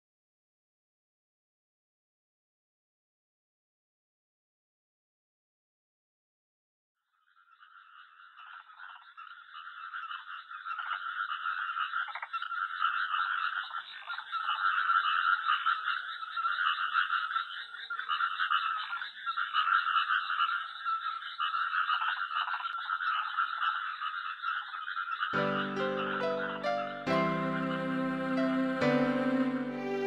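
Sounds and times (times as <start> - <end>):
chorus of frogs calling: 7.2 - 30.0.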